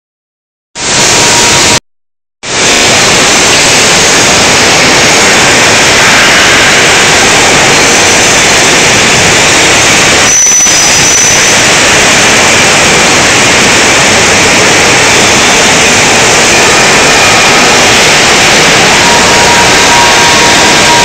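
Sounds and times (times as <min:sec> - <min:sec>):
loud machinery noise: 0:00.8 - 0:01.8, 0:02.4 - 0:21.0
faint high whine: 0:16.1 - 0:21.0.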